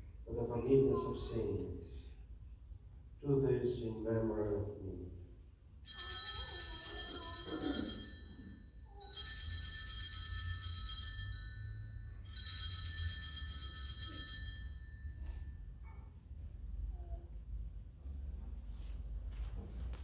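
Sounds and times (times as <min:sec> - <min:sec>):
altar bells jingling: 0:05.8 - 0:15.3.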